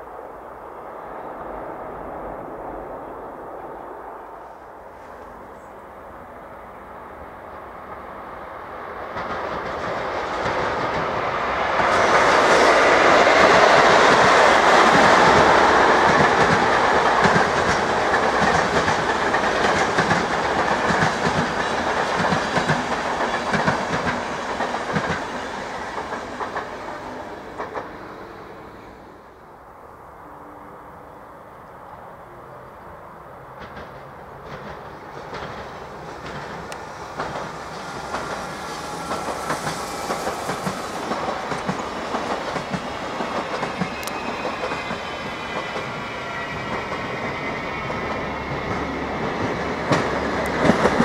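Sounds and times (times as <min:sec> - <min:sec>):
passenger train passing: 0:00.0 - 0:51.0
wheels clicking over rail joints: 0:33.6 - 0:45.0.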